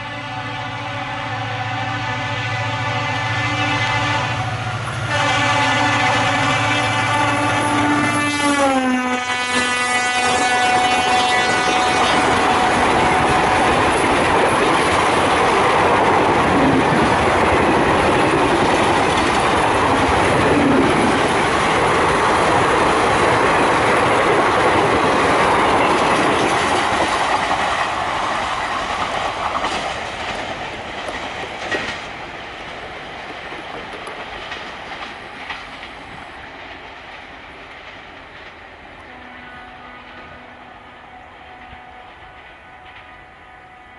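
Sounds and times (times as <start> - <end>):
train rumble: 0.0 - 43.9
train wheels clattering over rail joints: 10.6 - 38.7.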